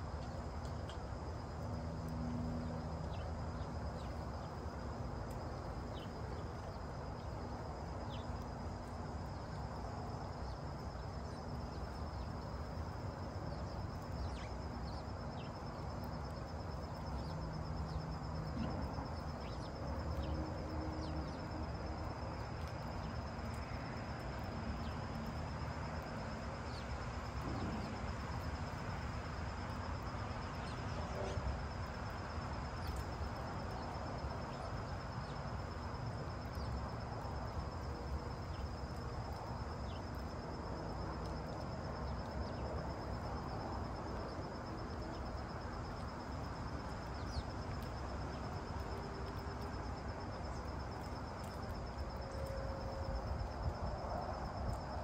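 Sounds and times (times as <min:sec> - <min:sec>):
insect trill: 0:00.0 - 0:55.0.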